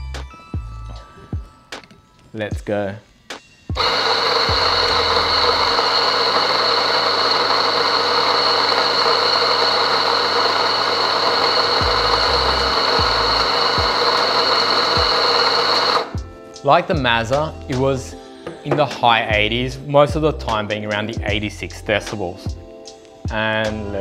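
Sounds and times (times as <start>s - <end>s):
electric coffee grinder: 3.8s - 16.2s.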